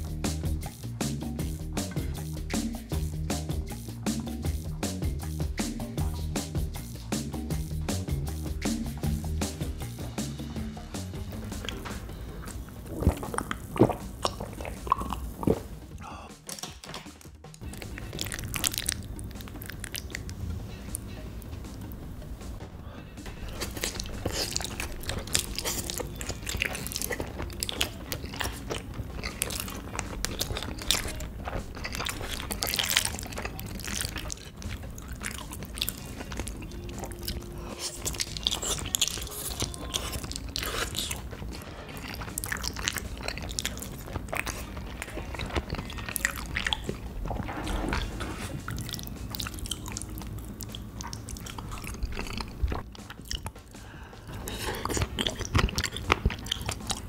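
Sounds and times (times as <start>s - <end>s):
person chewing crunchy food: 8.3s - 16.7s, 17.4s - 57.0s.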